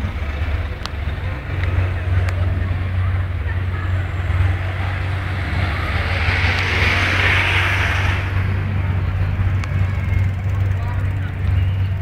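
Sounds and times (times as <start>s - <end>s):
steady low rumble: 0.0s - 12.0s
car driving past: 3.5s - 10.4s.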